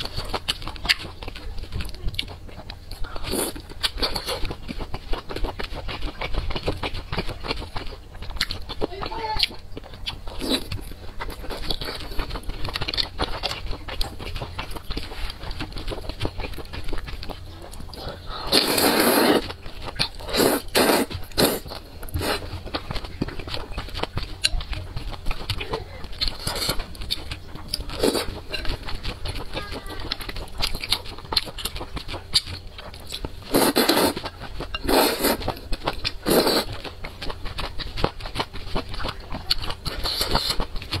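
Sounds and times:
wet chewing: 0.0s - 41.0s
noodle slurping: 18.0s - 22.5s, 33.4s - 35.6s, 36.2s - 36.8s.

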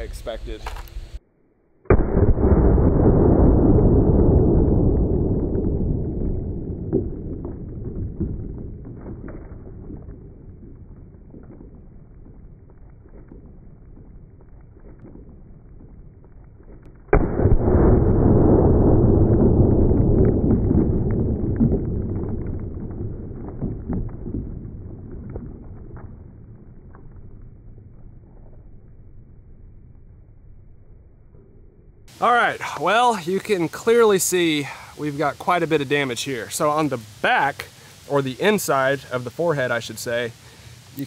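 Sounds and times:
slowed-down rifle shot booms: 1.8s - 29.5s.

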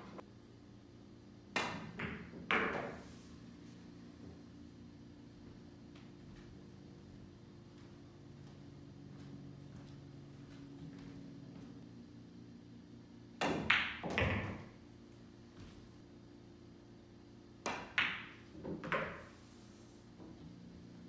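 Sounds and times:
pool balls clicking: 1.6s - 3.0s, 13.4s - 14.8s, 17.6s - 19.4s
low hum: 3.0s - 13.4s
cue tip tapping ball: 17.7s - 19.3s.

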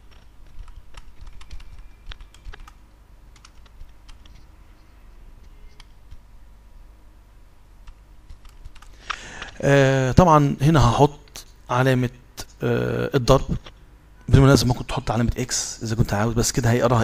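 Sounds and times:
keyboard typing: 0.0s - 6.3s, 7.8s - 9.6s
faint low hum: 0.0s - 17.0s.

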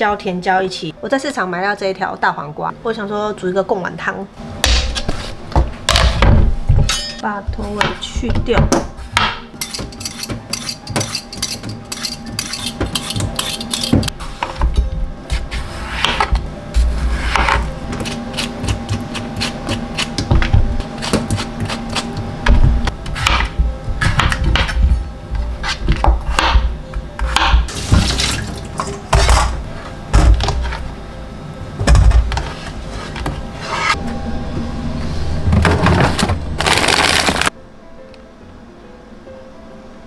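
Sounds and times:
background music: 0.0s - 40.0s
knife chopping on cutting board: 17.2s - 22.2s, 23.2s - 24.8s, 25.6s - 27.7s
plastic bag rustling: 35.9s - 37.5s.

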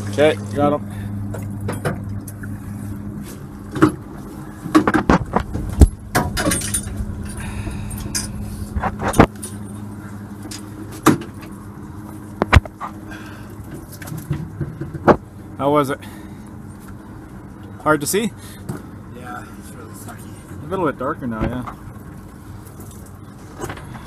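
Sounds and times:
boat motor idling: 0.0s - 24.0s.

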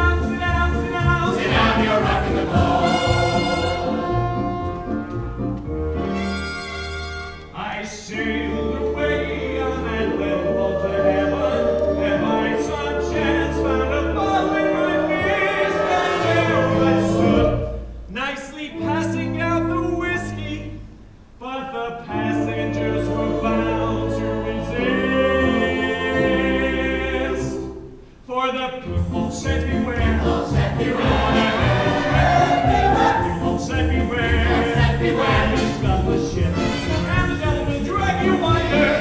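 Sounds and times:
cast singing gospel-style chorus: 0.0s - 4.4s, 7.6s - 17.9s, 21.4s - 28.0s, 29.1s - 37.1s, 38.0s - 39.0s
instrumental accompaniment: 0.0s - 7.6s, 28.9s - 39.0s.

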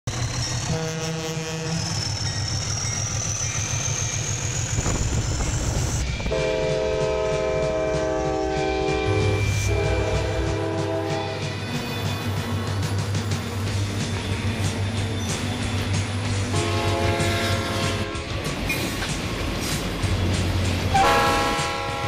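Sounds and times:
diesel engine rumble: 0.1s - 7.2s
locomotive air horn chord: 0.6s - 1.9s, 6.2s - 11.5s, 16.4s - 18.4s, 20.9s - 22.0s.

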